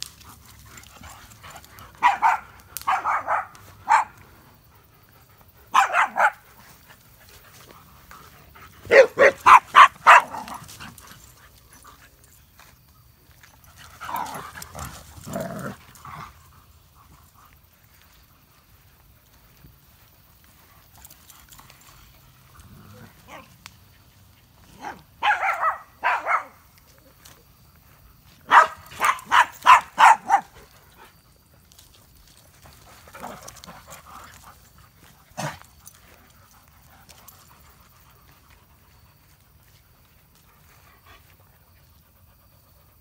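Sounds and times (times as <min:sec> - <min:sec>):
dog barking: 0:02.0 - 0:04.2, 0:05.7 - 0:06.4, 0:08.8 - 0:10.6, 0:24.8 - 0:26.6, 0:28.4 - 0:30.6.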